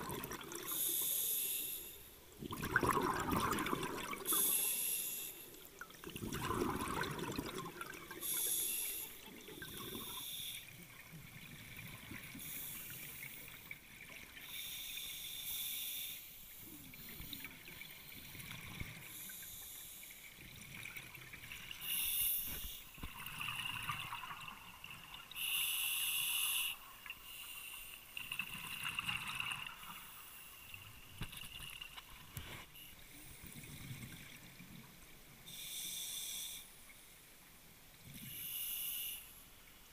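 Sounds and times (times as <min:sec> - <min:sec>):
breathing through regulator: 0:00.6 - 0:02.1, 0:02.8 - 0:05.6, 0:08.1 - 0:10.8, 0:21.8 - 0:22.9, 0:25.3 - 0:28.1
bubbles bursting underwater: 0:02.4 - 0:04.2, 0:06.0 - 0:08.2.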